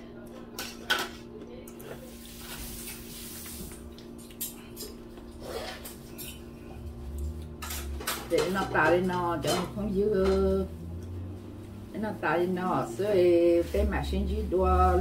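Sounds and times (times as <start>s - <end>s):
forks clinking on plates: 5.7s - 6.6s, 7.6s - 10.6s.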